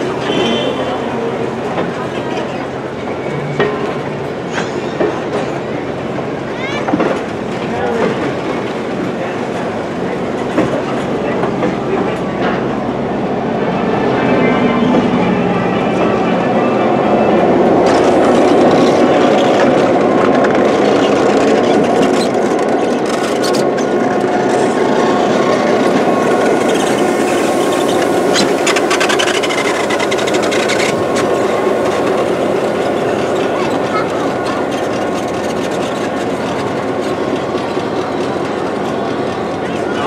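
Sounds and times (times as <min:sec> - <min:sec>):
train wheels rumbling on rail: 0:00.0 - 0:40.0
clanks and squeals: 0:21.0 - 0:39.4.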